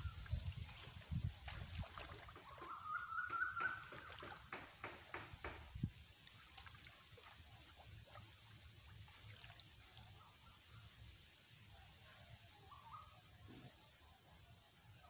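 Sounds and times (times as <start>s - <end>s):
water splashing and sloshing: 0.0s - 11.1s.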